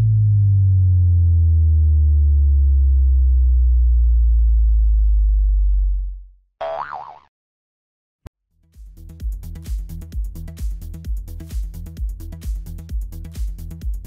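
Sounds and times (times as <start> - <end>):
deep synthesized drone sliding down: 0.0 - 6.3.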